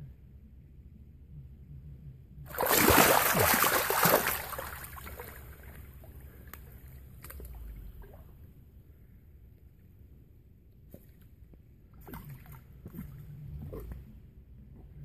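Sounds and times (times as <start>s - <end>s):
crocodile splashing in water: 2.5s - 6.0s.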